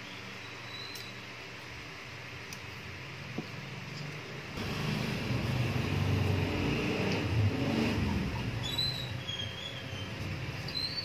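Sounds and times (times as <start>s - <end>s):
low rumbling noise: 4.6s - 9.3s.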